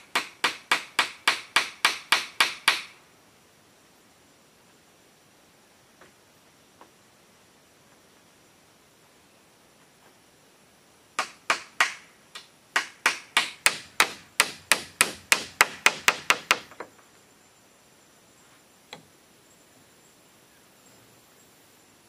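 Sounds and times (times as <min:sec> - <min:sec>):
hammer striking bamboo: 0:00.0 - 0:03.0, 0:11.2 - 0:16.9.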